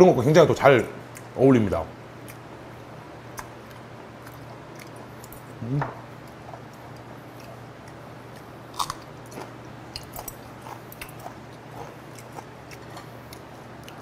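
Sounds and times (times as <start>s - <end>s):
chewing with wet smacks: 3.3s - 5.5s, 6.2s - 14.0s.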